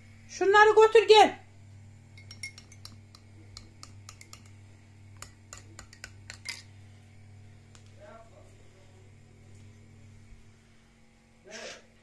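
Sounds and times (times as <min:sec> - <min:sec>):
dishes and cutlery clinking: 0:02.2 - 0:04.6, 0:05.2 - 0:06.7.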